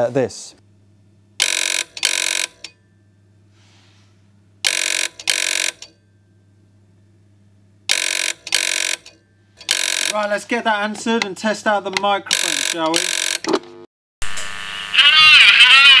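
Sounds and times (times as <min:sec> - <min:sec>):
telephone buzzing double ring: 0:01.4 - 0:02.8, 0:04.6 - 0:06.0, 0:07.9 - 0:10.2, 0:12.3 - 0:13.6.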